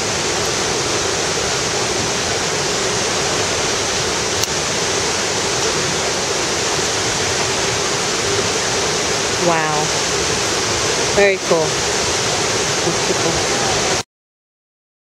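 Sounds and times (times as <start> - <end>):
rushing river water: 0.0 - 14.0.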